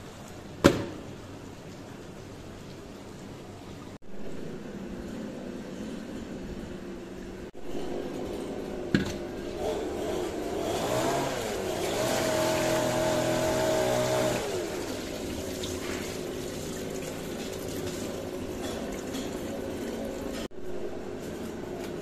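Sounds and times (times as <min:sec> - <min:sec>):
motor hum: 0:04.0 - 0:15.6
water pouring off rice: 0:11.4 - 0:20.4.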